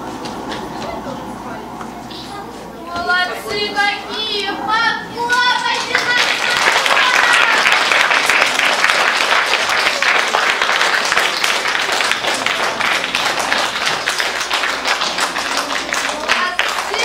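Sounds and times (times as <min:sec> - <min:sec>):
crowd applauding: 0:05.3 - 0:17.0.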